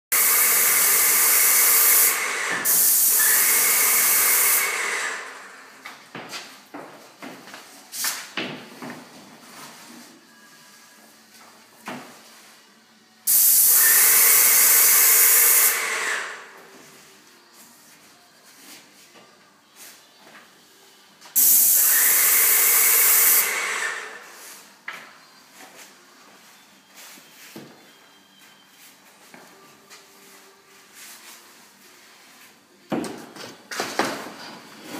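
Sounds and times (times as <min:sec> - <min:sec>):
spray gun hissing: 0:21.4 - 0:23.5.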